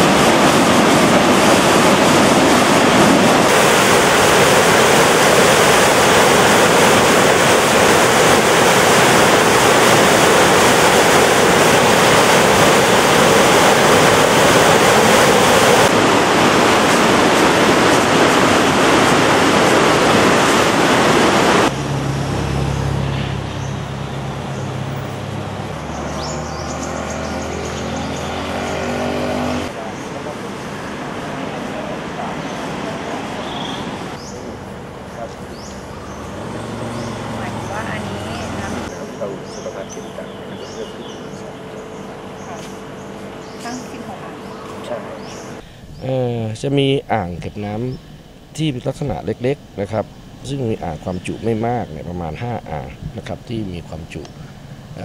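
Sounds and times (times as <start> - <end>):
water rushing over spillway: 0.0 - 22.8, 23.8 - 41.5
low hum: 0.0 - 33.2.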